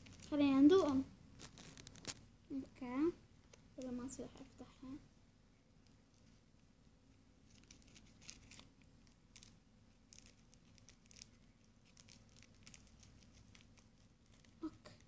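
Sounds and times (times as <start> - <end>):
plastic wrapper crinkling: 0.0 - 2.3, 7.4 - 15.0.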